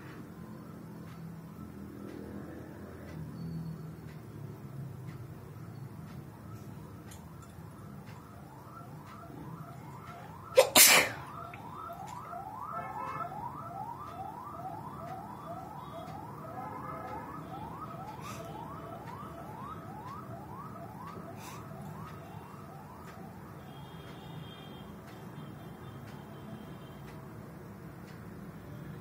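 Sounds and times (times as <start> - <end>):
woman sneezing: 10.6 - 11.2.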